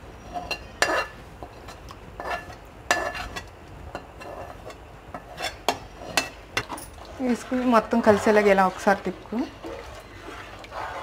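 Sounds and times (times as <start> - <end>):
metal spoon scraping pans: 0.2 - 11.0.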